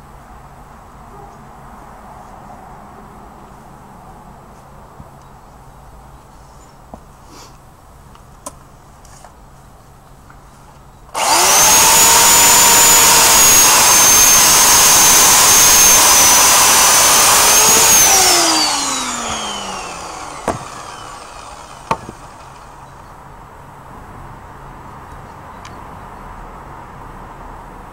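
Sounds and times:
electric chainsaw whining: 11.2s - 23.0s.

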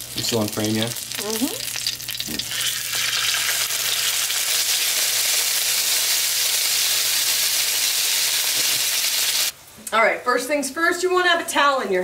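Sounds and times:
chicken sizzling in frying pan: 0.0s - 9.6s.

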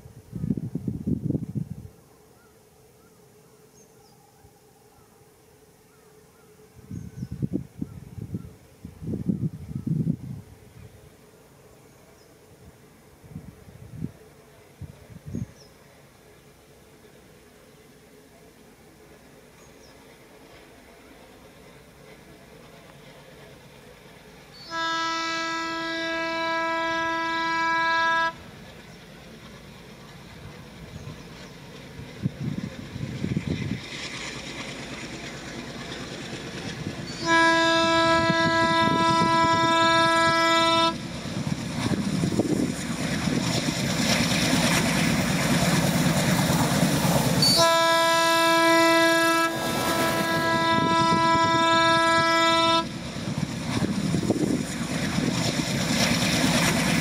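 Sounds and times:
train engine and wheels on track: 0.0s - 57.0s
locomotive horn blasts: 24.6s - 28.5s, 37.1s - 41.1s, 47.4s - 53.0s.

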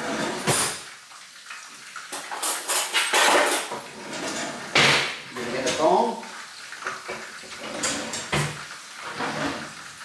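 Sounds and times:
dishes and utensils clattering: 0.0s - 0.9s, 2.1s - 5.9s, 6.8s - 9.8s.

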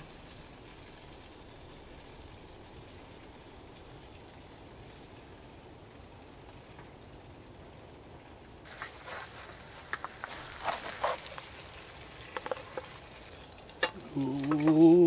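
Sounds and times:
eggs sizzling in a frying pan: 0.0s - 15.0s
spatula scraping and clicking: 8.8s - 11.5s, 12.2s - 13.0s
man talking: 14.0s - 15.0s.

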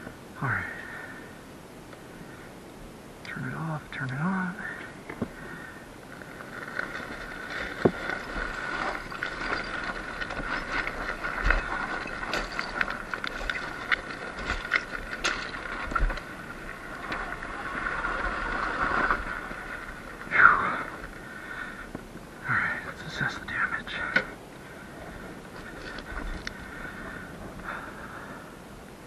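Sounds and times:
rattles and knocks on rocky ground: 4.8s - 5.6s, 6.2s - 21.1s, 25.0s - 27.9s.

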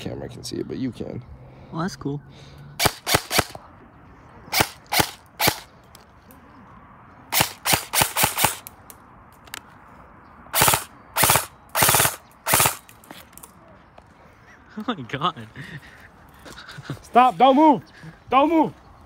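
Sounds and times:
toy guns firing: 2.8s - 3.6s, 4.5s - 5.7s, 7.3s - 8.7s, 10.6s - 13.0s.

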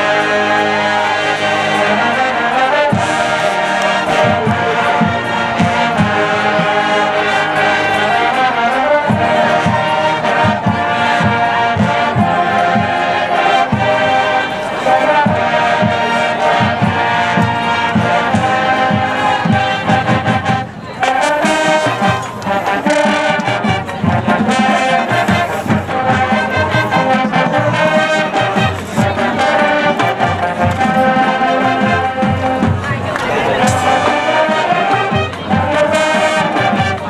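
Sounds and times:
brass section playing tune: 0.0s - 37.0s
marching drum beat: 21.2s - 37.0s.

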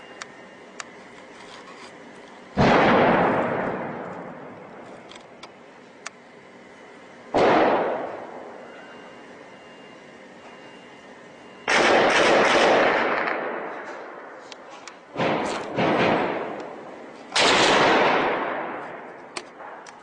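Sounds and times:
loud weapon blasts echoing: 2.6s - 4.8s, 7.3s - 8.4s, 11.7s - 14.2s, 15.1s - 19.8s.

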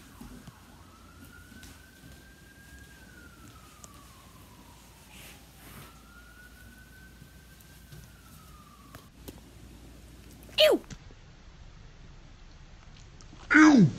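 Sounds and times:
faint siren wailing: 0.0s - 10.8s.

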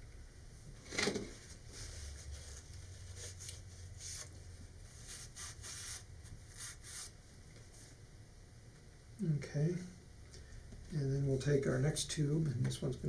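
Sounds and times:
paper towel rubbing cardboard: 1.8s - 4.3s, 4.9s - 7.2s.

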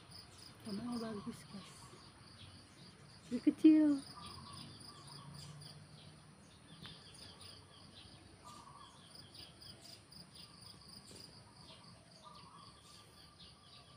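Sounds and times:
insects chirping: 0.0s - 13.9s
bird-like call: 8.4s - 10.0s.

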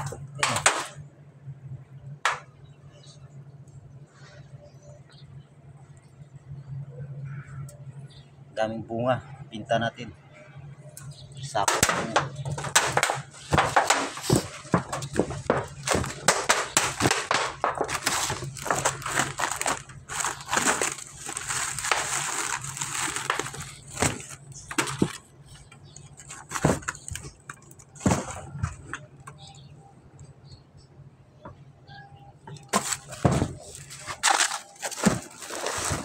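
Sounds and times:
knocks on corrugated metal roof: 11.6s - 19.0s
plastic sack rustling: 11.8s - 25.2s, 32.7s - 36.0s.

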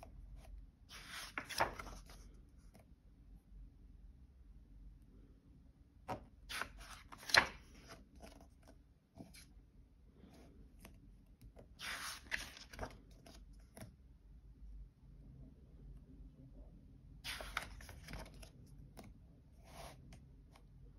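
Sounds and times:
paper pages turning: 0.9s - 2.2s, 6.1s - 8.5s, 11.8s - 13.5s, 17.3s - 18.5s.

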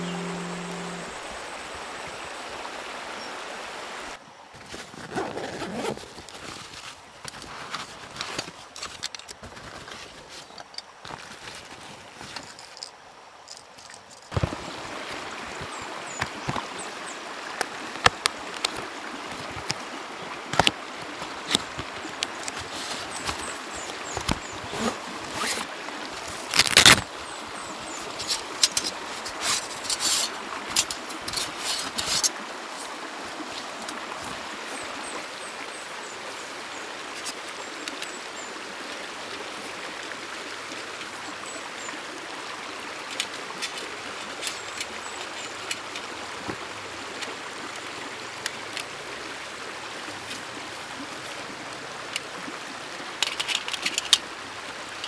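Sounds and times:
river rushing: 13.5s - 55.0s.

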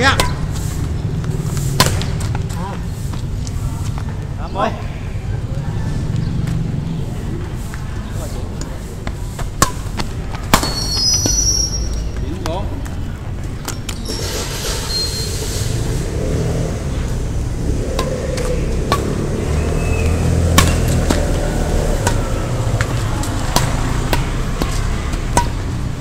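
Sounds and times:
steady low rumble: 14.4s - 26.0s
badminton racket hitting shuttlecock: 18.0s - 19.3s, 20.0s - 26.0s.

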